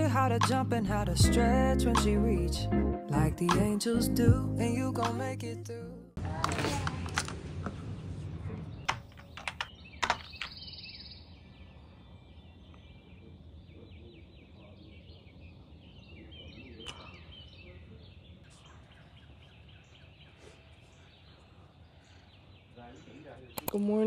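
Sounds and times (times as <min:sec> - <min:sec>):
birds chirping: 0:07.7 - 0:24.0.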